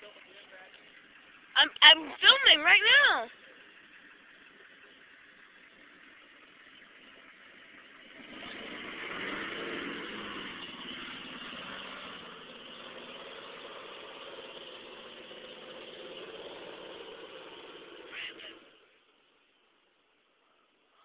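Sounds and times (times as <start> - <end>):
diesel engine pulling under load: 3.2 - 19.0.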